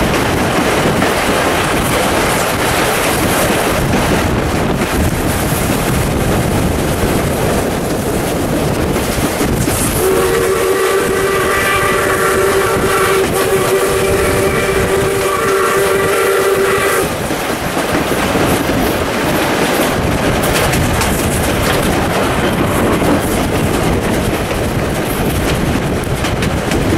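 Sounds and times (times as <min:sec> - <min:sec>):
train running noise: 0:00.0 - 0:26.9
wind rushing: 0:00.0 - 0:26.9
steam locomotive whistle: 0:09.8 - 0:17.1.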